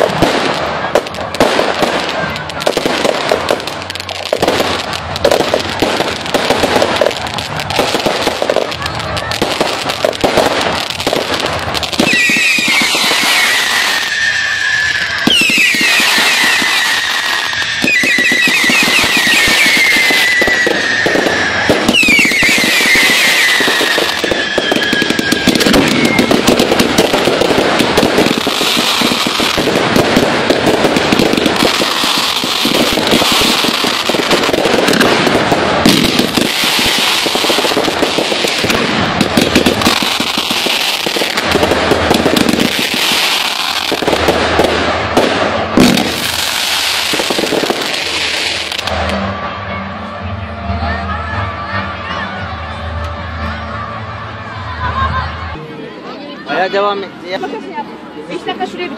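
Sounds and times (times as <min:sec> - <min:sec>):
fireworks crackling and banging: 0:00.0 - 0:55.6
whistling fireworks: 0:00.0 - 0:55.6.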